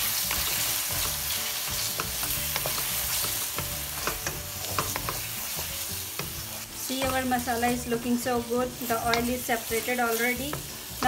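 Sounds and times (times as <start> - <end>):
food sizzling in oil: 0.0 - 11.0
wooden spatula scraping pan: 0.2 - 8.0.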